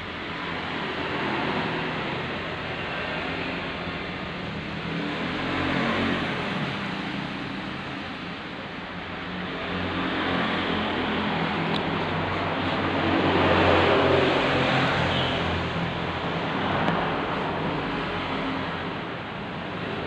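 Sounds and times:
passing motor vehicle engine: 0.0s - 20.0s.

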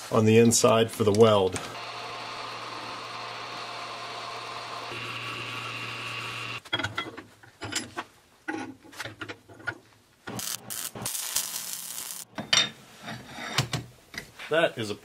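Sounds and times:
metal lathe running: 1.7s - 6.6s.

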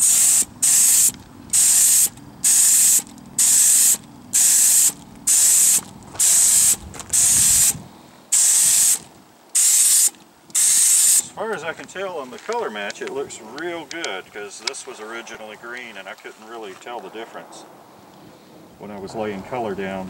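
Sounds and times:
spray gun hissing: 0.0s - 11.3s.

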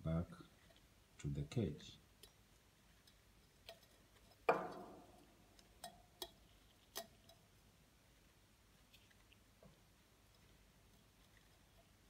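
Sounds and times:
glass beaker ticks and clicks: 3.0s - 7.4s
knock on glass ringing: 4.5s - 5.1s.

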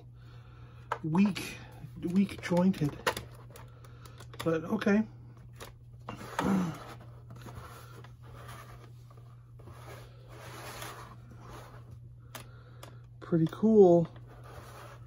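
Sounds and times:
plastic rubbing on paper: 14.2s - 15.0s.

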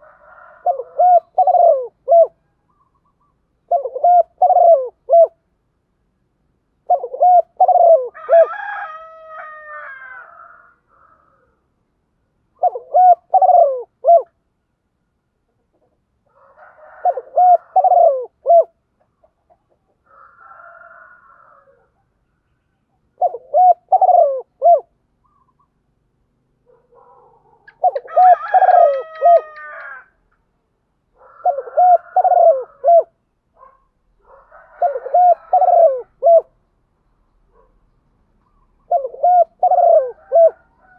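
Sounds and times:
dove cooing: 0.0s - 3.0s, 3.6s - 5.4s, 6.8s - 8.8s, 12.6s - 14.4s, 15.8s - 22.0s, 23.2s - 25.7s, 26.7s - 30.0s, 31.2s - 36.6s, 38.4s - 40.9s.

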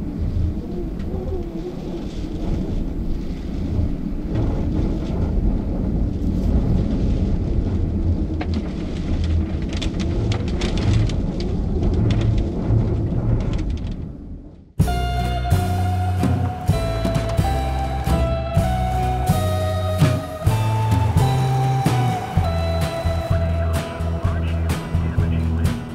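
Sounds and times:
wind rumbling on microphone: 0.0s - 25.9s
raindrops tapping: 14.8s - 25.9s.

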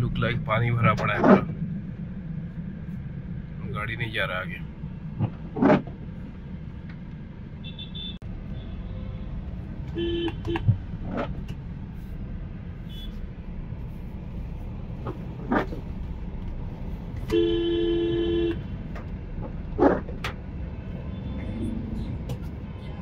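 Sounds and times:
traffic rumble inside car: 0.0s - 23.0s
car horn: 7.6s - 9.2s, 9.9s - 10.7s, 17.3s - 18.7s.

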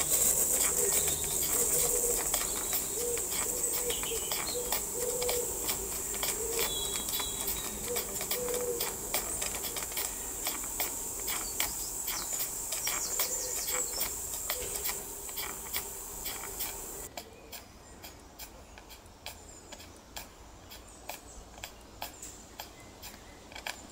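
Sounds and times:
gas burner hissing: 0.0s - 17.1s.

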